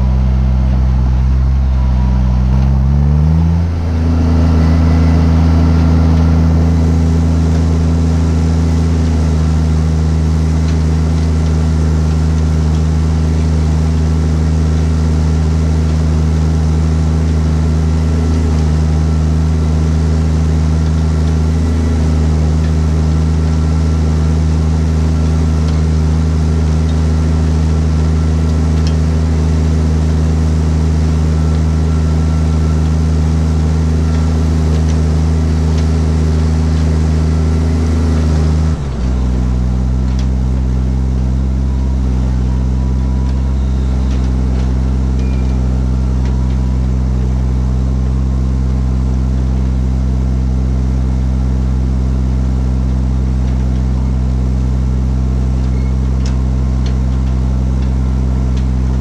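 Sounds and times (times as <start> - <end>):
diesel tractor engine running: 0.0 - 59.0
faint high whine: 12.9 - 59.0.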